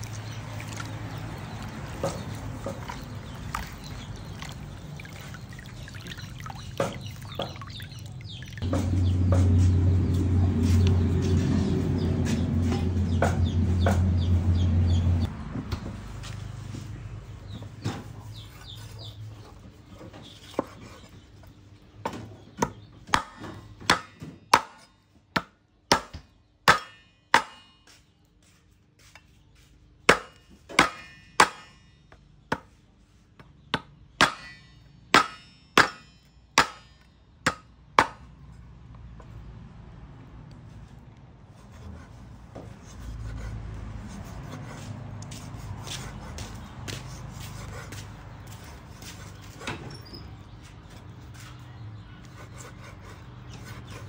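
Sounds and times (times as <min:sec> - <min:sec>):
knife chopping on wooden board: 0:22.6 - 0:28.0.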